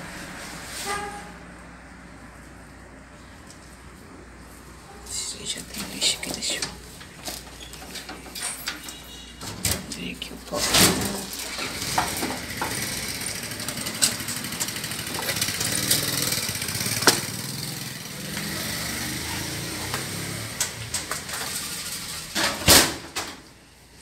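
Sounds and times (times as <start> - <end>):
vehicle engine running: 11.3 - 22.4.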